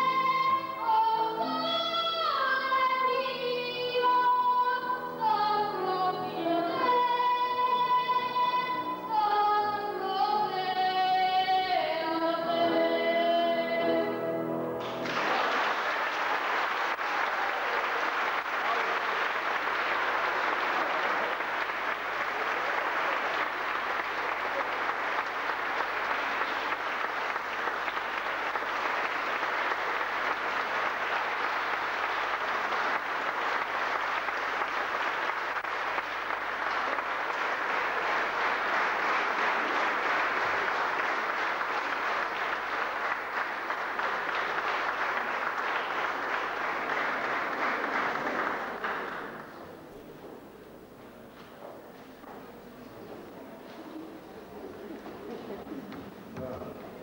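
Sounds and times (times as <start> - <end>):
audience applauding: 14.8 - 50.2.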